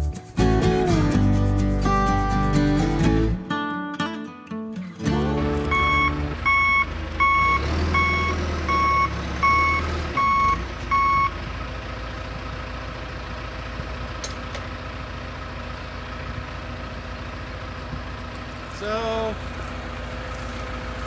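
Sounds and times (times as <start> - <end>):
diesel engine running: 5.0 - 21.0
backup alarm beeping: 5.7 - 11.4.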